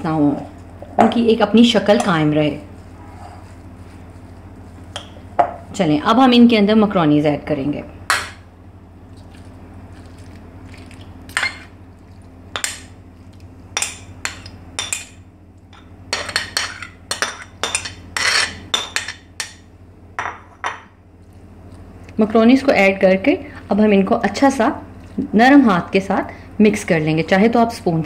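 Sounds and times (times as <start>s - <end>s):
steady low hum: 0.0s - 28.0s
metal spoon scraping and clinking: 17.7s - 18.6s.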